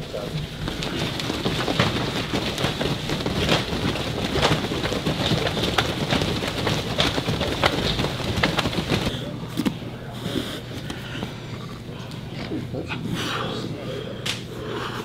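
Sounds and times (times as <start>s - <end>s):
feet landing on mat: 0.6s - 9.1s.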